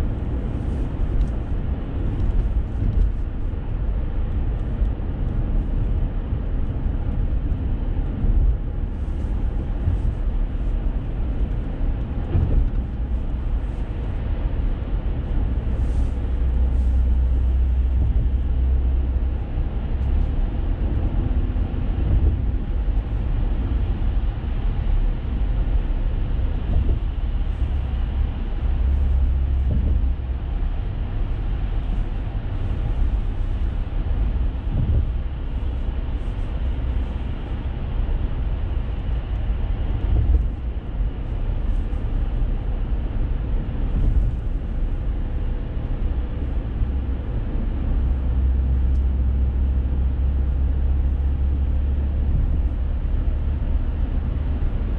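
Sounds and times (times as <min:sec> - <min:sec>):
car road rumble and tyre noise: 0:00.0 - 0:54.9.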